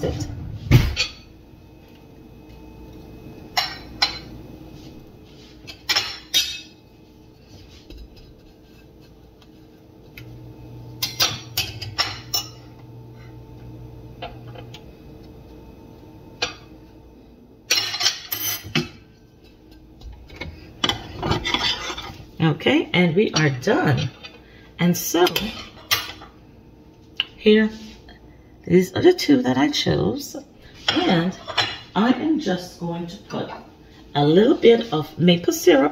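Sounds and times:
faint steady hum: 0:00.0 - 0:35.9
metal utensils clinking on pan: 0:05.7 - 0:06.8.

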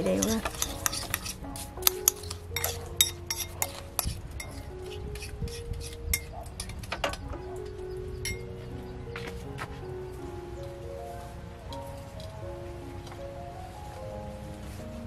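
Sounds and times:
spoon clinking on bowl: 0:00.0 - 0:07.2
spoon stirring thick sauce: 0:00.1 - 0:06.3.

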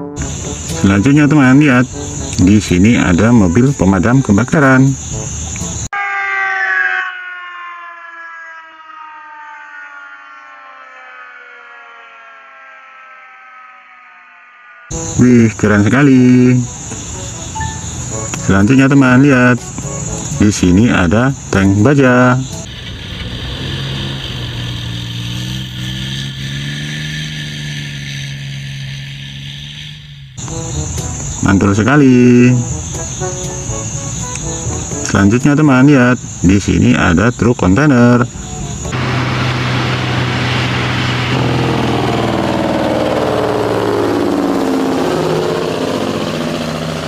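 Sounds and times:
tank engine running: 0:22.4 - 0:31.4, 0:38.3 - 0:47.0.

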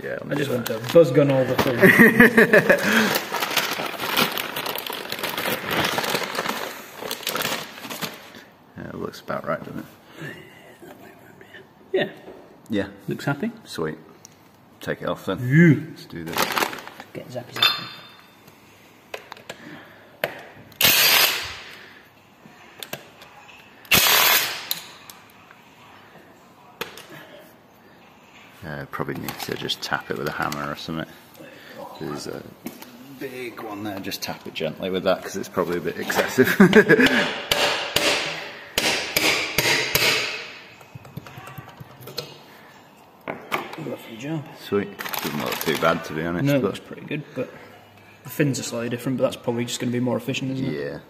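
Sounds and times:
plastic bag crinkling: 0:02.7 - 0:08.4, 0:16.2 - 0:17.1, 0:45.0 - 0:46.1
impact wrench hammering: 0:37.1 - 0:40.7.

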